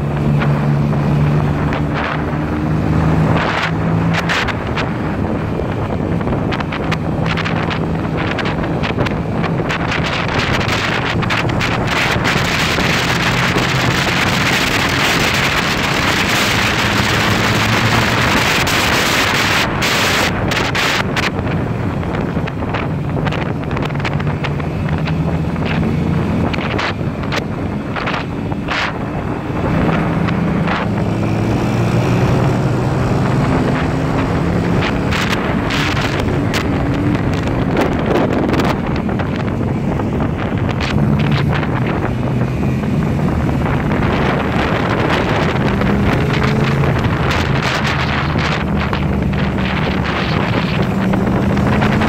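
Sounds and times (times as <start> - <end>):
engine hum: 0.0 - 52.0
wind buffeting microphone: 0.0 - 52.0.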